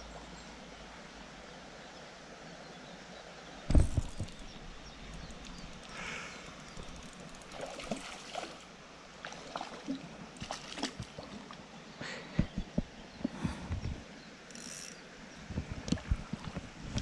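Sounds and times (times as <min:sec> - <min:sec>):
creek water trickling: 0:00.1 - 0:12.2.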